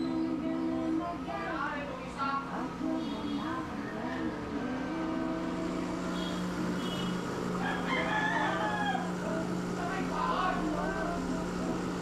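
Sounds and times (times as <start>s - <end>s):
espresso machine pump humming: 2.5s - 12.0s
rooster crowing: 7.6s - 9.4s.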